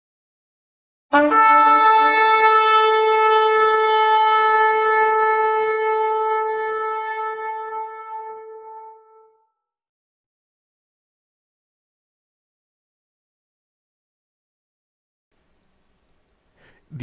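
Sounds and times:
shofar blast: 0:01.1 - 0:09.5.

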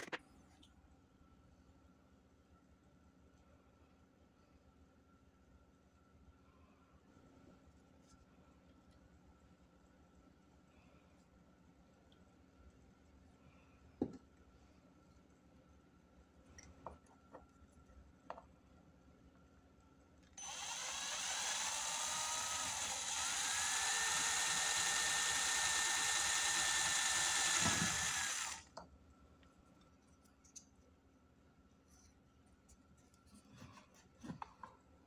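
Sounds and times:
cordless drill whining: 0:20.4 - 0:28.7.

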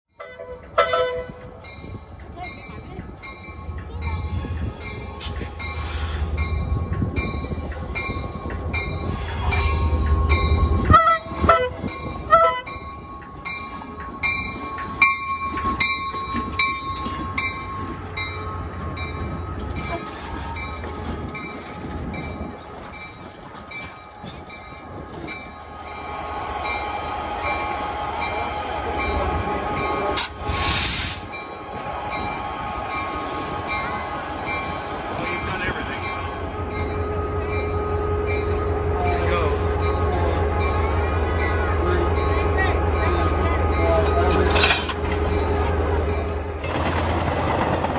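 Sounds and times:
diesel locomotive engine rumbling: 0:00.1 - 0:47.9
loud hissing burst: 0:30.2 - 0:31.3.

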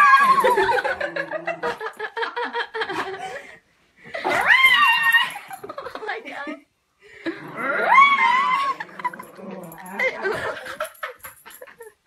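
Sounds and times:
person laughing: 0:00.2 - 0:03.4.

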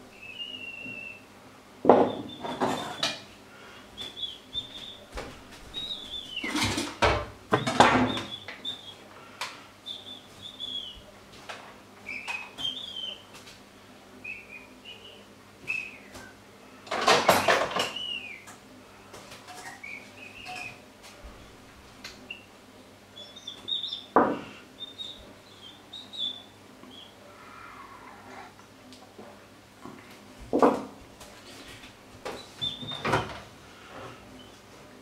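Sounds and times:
metal pots and utensils clattering: 0:06.4 - 0:08.2.

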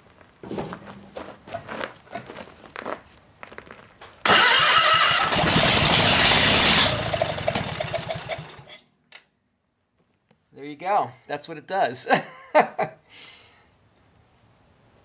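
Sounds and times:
loud tractor engine running: 0:04.2 - 0:08.8.

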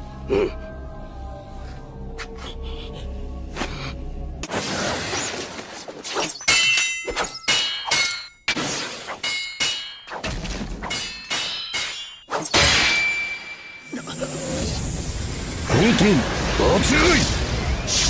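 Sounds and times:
metallic blade clangs: 0:06.4 - 0:08.5, 0:09.2 - 0:10.2, 0:10.8 - 0:13.8.

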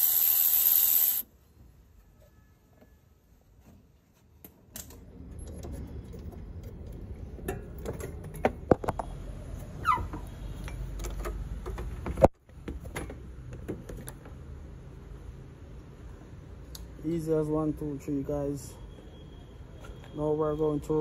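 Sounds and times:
short falling squeak: 0:09.8 - 0:10.4.

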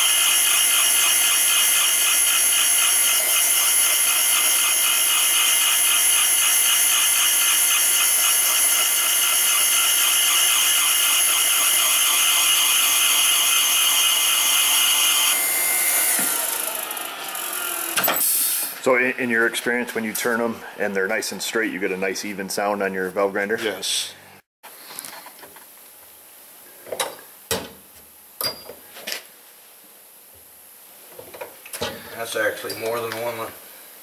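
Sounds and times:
valve grinding machine whining: 0:00.0 - 0:18.9.

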